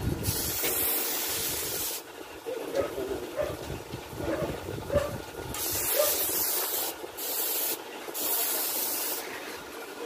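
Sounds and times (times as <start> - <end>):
spray gun hissing: 0.2 - 2.1, 5.5 - 9.6.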